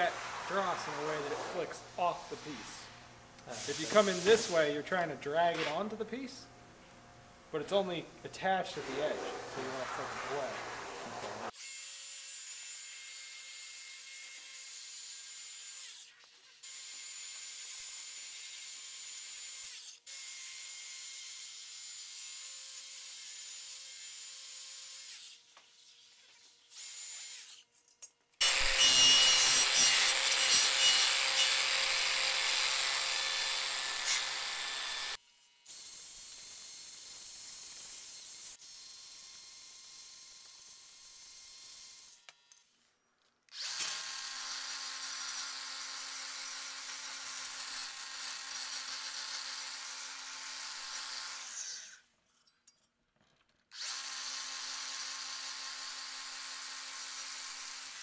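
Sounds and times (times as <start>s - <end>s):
angle grinder on steel: 8.4s - 16.2s, 28.4s - 35.2s.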